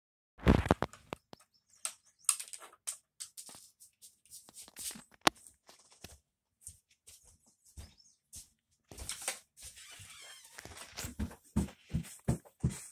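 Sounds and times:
plastic toy bricks clicking: 2.3 - 3.3.

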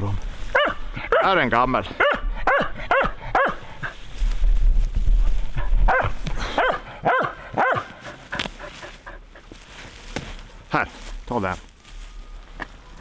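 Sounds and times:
dog barking sharply: 0.6 - 1.3, 2.0 - 3.6, 5.9 - 7.9.

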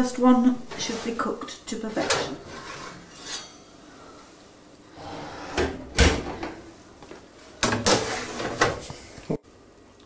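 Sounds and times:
dish scraping in oven: 0.5 - 4.2, 4.9 - 6.7, 7.6 - 8.9.

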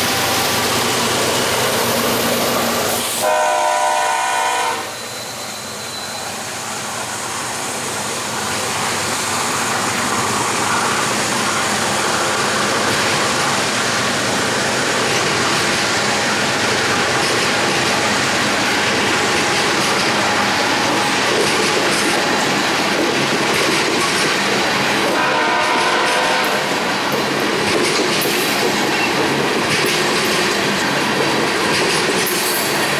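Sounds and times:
freight train wheels rumbling: 0.0 - 32.9.

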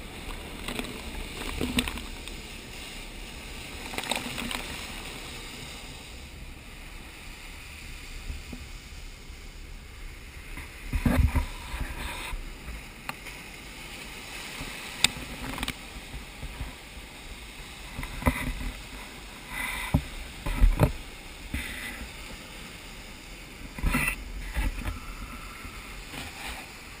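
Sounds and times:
seawater sloshing and splashing: 0.0 - 9.0.

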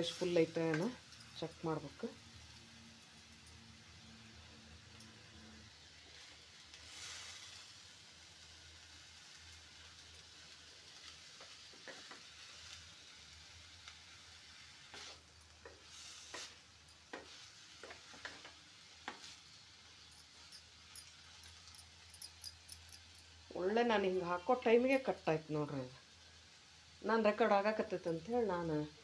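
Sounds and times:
vegetables sizzling in pan: 0.0 - 29.0
wooden spatula scraping pan: 14.9 - 16.6.

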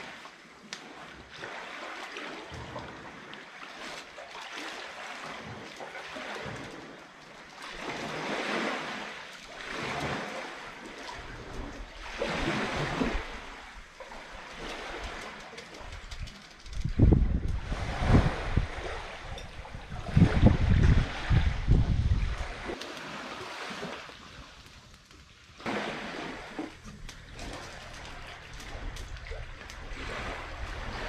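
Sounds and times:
sea waves washing onto beach: 0.0 - 31.0.

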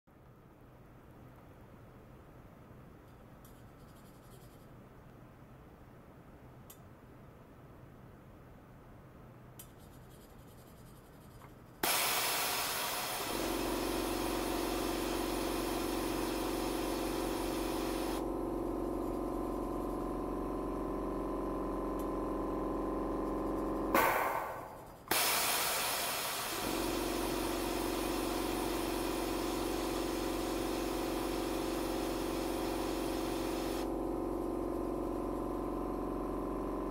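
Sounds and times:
vibrating pipe hiss and hum: 9.6 - 36.9
loud burst: 11.8 - 18.2, 24.0 - 33.9.

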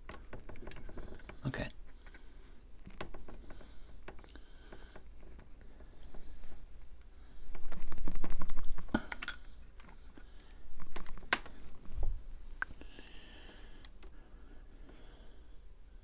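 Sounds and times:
hands rubbing and handling parts: 0.0 - 15.2.

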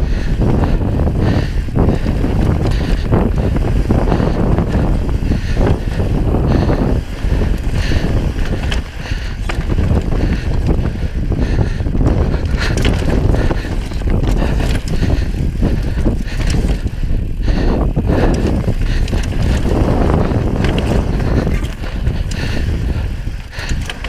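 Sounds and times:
wind buffeting microphone: 0.0 - 24.0
bike tyres knocking over rocks: 12.0 - 17.0, 18.2 - 22.9.

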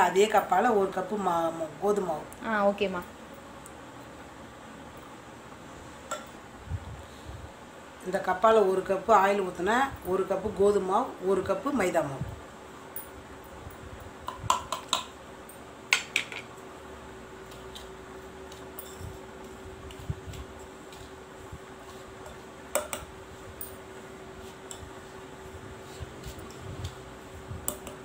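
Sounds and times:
steady low hum: 0.0 - 28.0
utensils knocking on metal bowl: 14.2 - 15.1, 15.9 - 16.5, 22.2 - 23.1.

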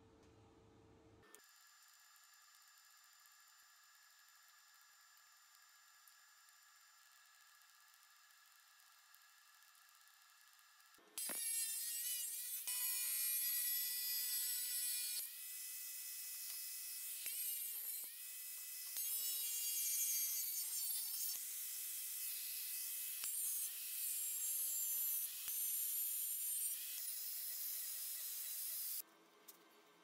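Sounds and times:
angle grinder cutting metal: 11.2 - 29.0.

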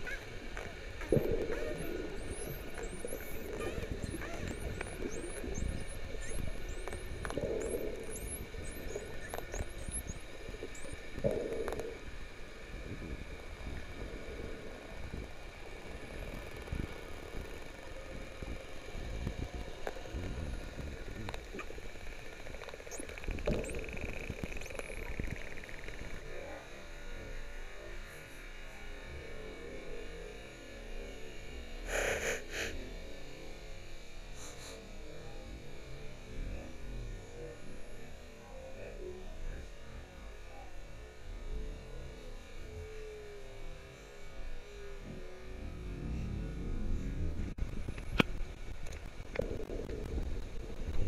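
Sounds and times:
dolphins whistling: 1.1 - 11.6.

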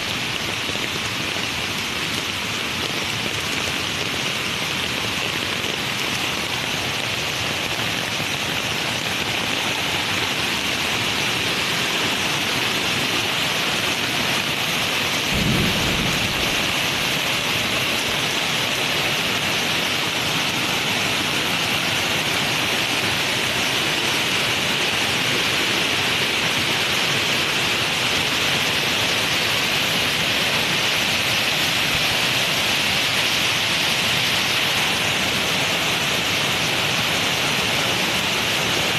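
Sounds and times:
heavy rain hissing: 0.0 - 38.9
low rumble of thunder: 15.3 - 17.5.

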